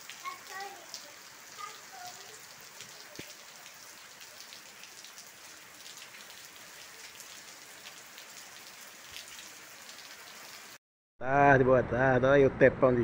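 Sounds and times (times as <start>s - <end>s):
steady rain on roofs and foliage: 0.0s - 10.8s.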